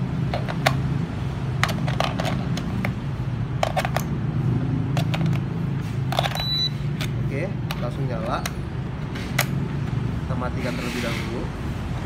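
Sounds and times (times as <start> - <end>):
batteries clicking into plastic compartment: 1.6 - 2.9, 4.9 - 5.5, 6.1 - 8.6.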